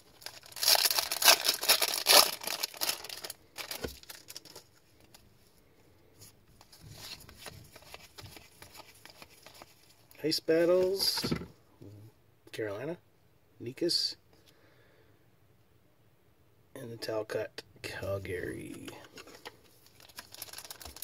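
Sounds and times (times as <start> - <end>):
foil wrapper tearing and crinkling: 0.1 - 4.7, 19.9 - 21.0
cards shuffling: 6.6 - 10.0, 18.6 - 21.0.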